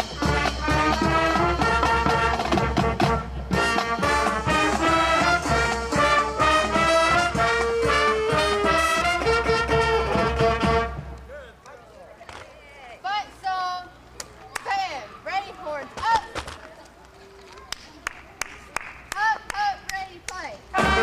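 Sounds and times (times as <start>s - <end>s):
upbeat swing music with brass: 0.0s - 11.2s, 20.7s - 21.0s.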